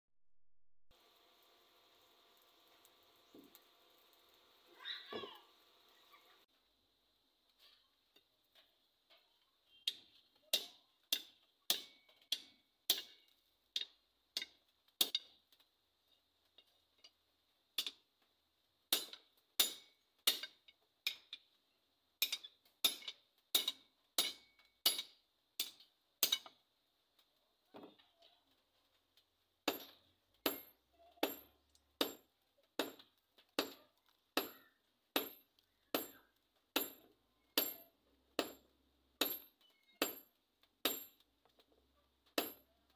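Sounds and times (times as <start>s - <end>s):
hammer striking metal on anvil: 9.9s - 13.2s, 18.9s - 21.3s, 22.2s - 26.5s, 36.8s - 38.6s.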